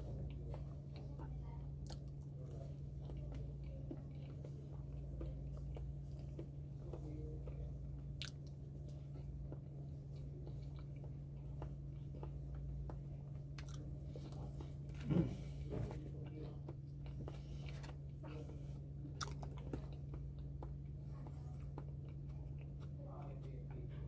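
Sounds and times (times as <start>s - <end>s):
steady low hum: 0.0s - 24.0s
person chewing banana: 2.9s - 23.0s.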